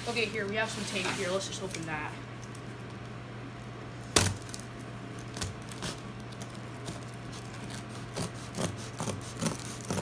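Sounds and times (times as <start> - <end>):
scissors snapping packing tape: 4.2 - 10.0.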